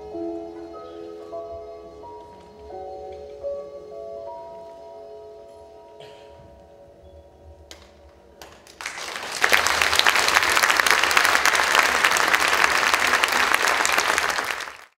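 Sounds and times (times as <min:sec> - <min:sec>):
audience applause: 0:08.6 - 0:14.9.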